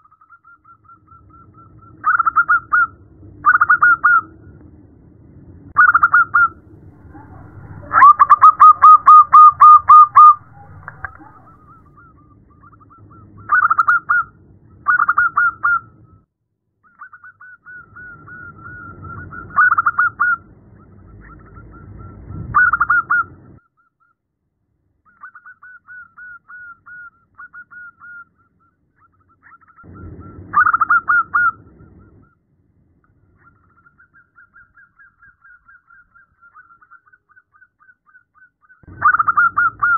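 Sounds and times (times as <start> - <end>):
faint bird trills: 5.8 - 14.3, 33.2 - 39.9
low rumble: 6.5 - 11.9
dove cooing in staccato bursts: 6.9 - 11.8.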